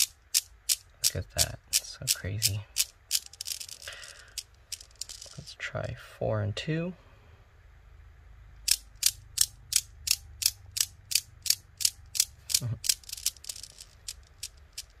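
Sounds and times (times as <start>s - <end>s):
newton's cradle balls clacking: 0.0s - 5.5s, 8.6s - 15.0s.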